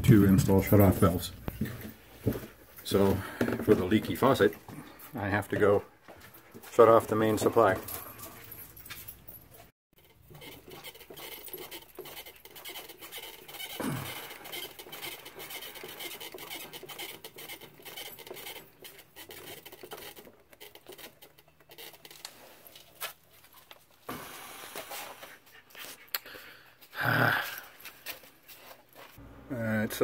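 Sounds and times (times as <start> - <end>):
hand scratching valve handwheel: 10.0 - 23.6.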